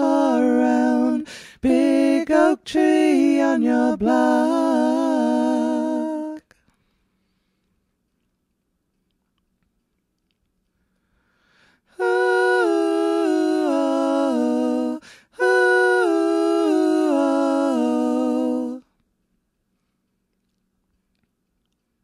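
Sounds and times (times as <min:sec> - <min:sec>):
person humming a melody: 0:00.0 - 0:06.5, 0:12.0 - 0:18.9.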